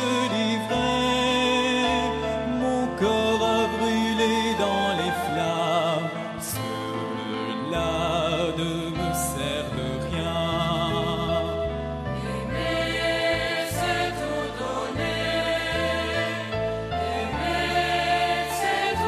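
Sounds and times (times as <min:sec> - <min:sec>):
choir singing a hymn: 0:12.1 - 0:19.0.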